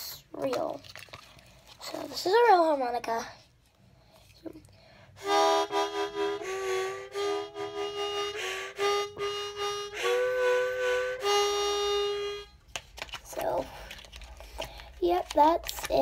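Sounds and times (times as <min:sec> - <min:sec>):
harmonica chords: 0:05.2 - 0:12.6.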